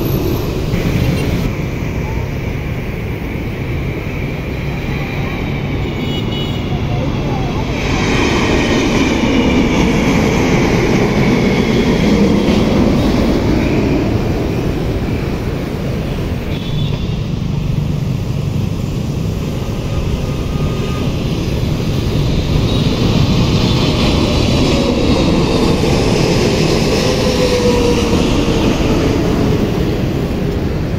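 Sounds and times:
jet engine roar overhead: 0.0s - 30.9s
falling jet whine: 7.1s - 16.4s, 18.8s - 30.9s.

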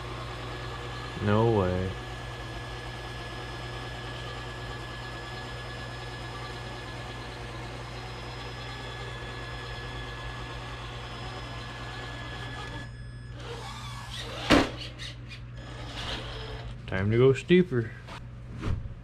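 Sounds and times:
electric motor with high whine: 0.0s - 14.8s, 15.6s - 16.8s.

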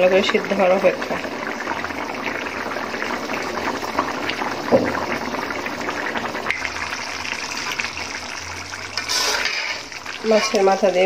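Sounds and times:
thick stew bubbling in a pot: 0.0s - 11.0s
loud bubble pop: 4.7s - 5.0s.

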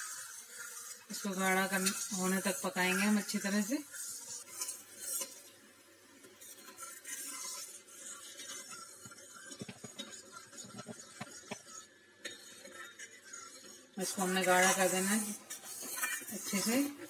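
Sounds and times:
ladle scraping a steel pan: 3.0s - 5.5s, 6.4s - 11.3s, 12.2s - 17.0s.

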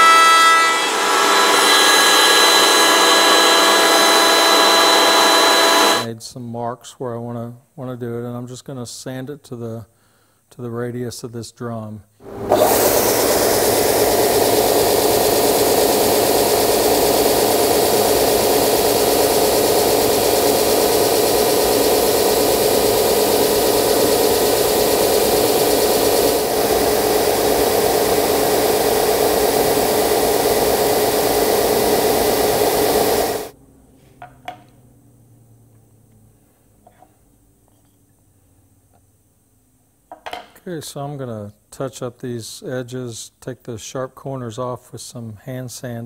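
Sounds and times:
belt sander running: 0.0s - 6.1s, 12.2s - 33.5s.

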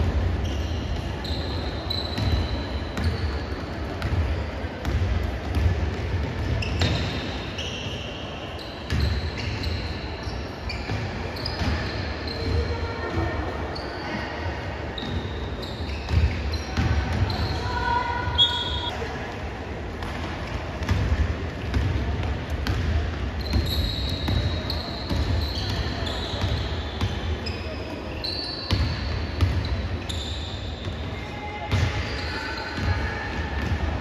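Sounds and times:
sneakers squeaking: 0.0s - 19.1s, 20.0s - 34.0s
basketball bouncing on court: 2.1s - 7.3s, 15.9s - 17.5s, 20.0s - 27.2s, 28.7s - 30.1s, 33.6s - 34.0s.

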